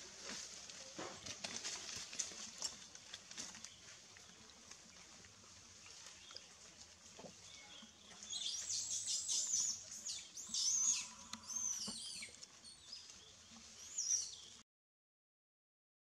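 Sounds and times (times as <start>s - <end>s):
high chirping calls: 7.6s - 13.0s.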